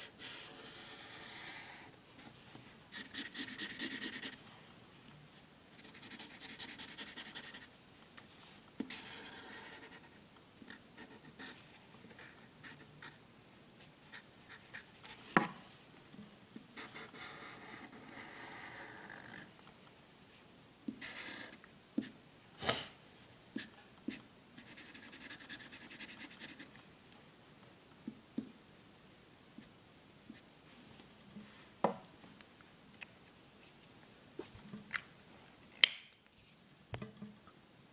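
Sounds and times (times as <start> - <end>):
marker scratching on paper: 0.1 - 1.9, 2.9 - 4.4, 5.8 - 7.7, 8.9 - 13.2, 14.1 - 15.2, 16.8 - 19.2, 21.0 - 22.1, 23.6 - 26.7.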